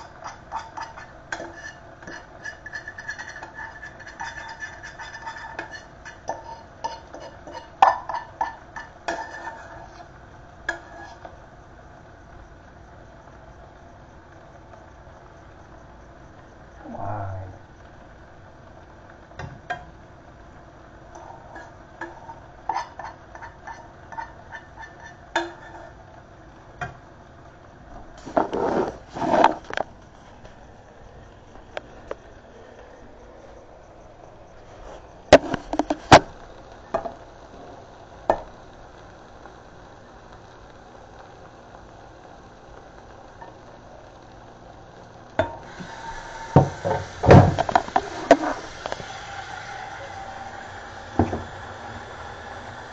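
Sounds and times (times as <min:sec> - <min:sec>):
water running into metal sink: 0:45.6 - 0:52.7
loud knocks in sink: 0:46.6 - 0:47.7, 0:51.2 - 0:51.5.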